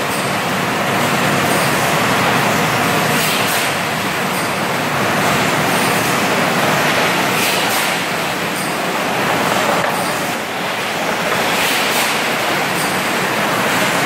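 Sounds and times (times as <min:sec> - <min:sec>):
machinery rushing noise: 0:05.2 - 0:14.0.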